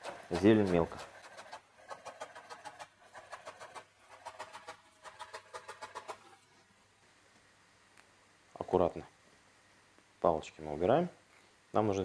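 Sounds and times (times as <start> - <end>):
knife chopping on cutting board: 0.0 - 6.1.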